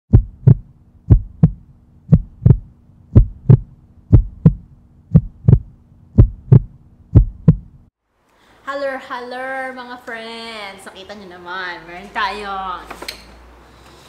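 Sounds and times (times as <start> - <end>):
faint low hum: 0.1 - 7.9
heartbeat thumps: 0.1 - 7.9.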